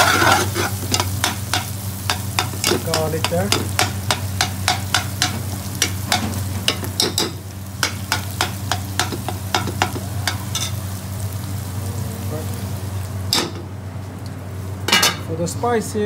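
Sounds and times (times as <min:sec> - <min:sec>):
metal ladle scraping a metal pot: 0:00.0 - 0:01.6
vegetables sizzling in oil: 0:00.0 - 0:15.3
steady low hum: 0:00.0 - 0:16.0.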